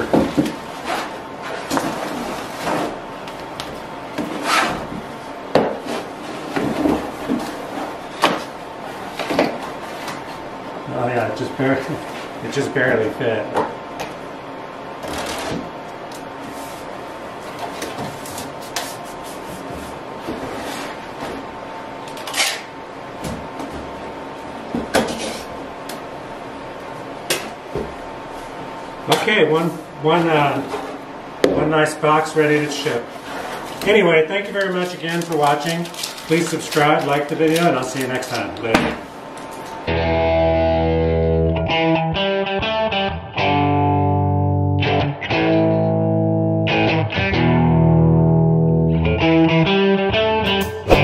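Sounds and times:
cardboard scrapes and knocks: 0:04.2 - 0:05.0.

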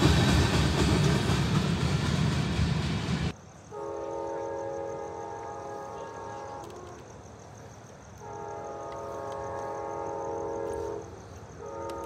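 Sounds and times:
locomotive horn blasts: 0:03.7 - 0:06.9, 0:08.2 - 0:12.0.

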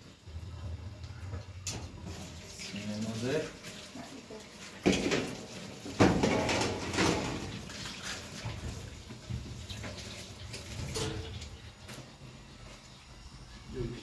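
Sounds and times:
tap water running into sink: 0:01.6 - 0:12.1.

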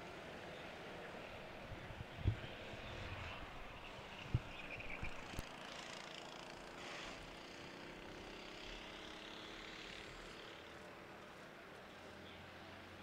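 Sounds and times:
distant vehicle engine hum: 0:00.0 - 0:13.0.

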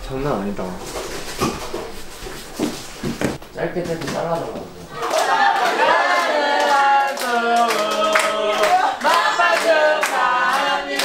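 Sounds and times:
group singing: 0:04.9 - 0:11.0
hands clapping: 0:05.0 - 0:11.0.

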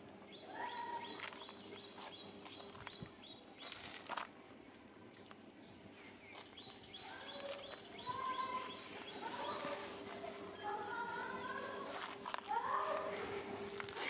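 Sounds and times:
birds chirping: 0:00.0 - 0:14.0.

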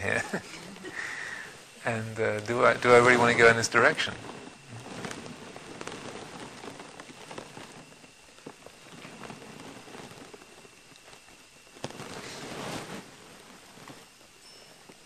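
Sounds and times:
faint steady hiss: 0:00.0 - 0:15.0
light ticks and crackles: 0:00.0 - 0:15.0
rustle of noise: 0:00.0 - 0:15.0.

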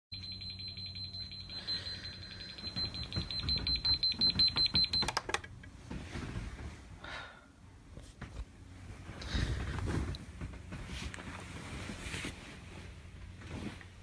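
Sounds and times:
electronic alarm beeping: 0:00.1 - 0:05.2.

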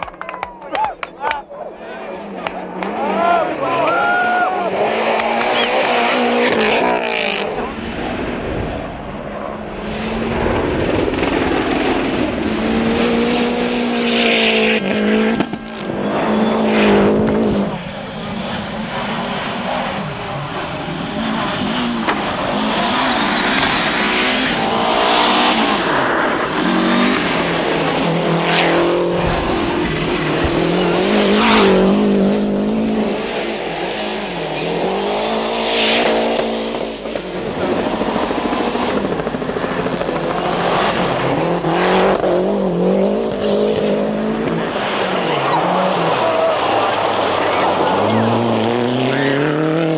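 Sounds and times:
rally car engines at full throttle: 0:00.0 - 0:49.9
sharp bursts of engine noise: 0:29.0 - 0:33.2.

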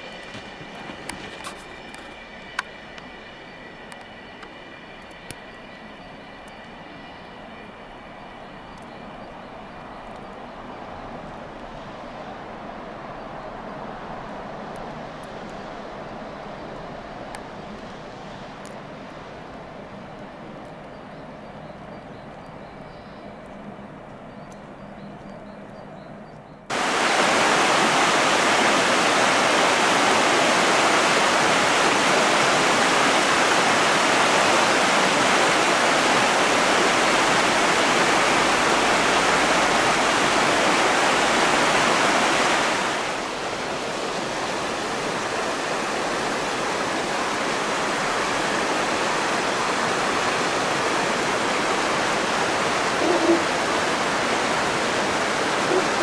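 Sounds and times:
river rushing over boulders: 0:26.7 - 0:56.0.

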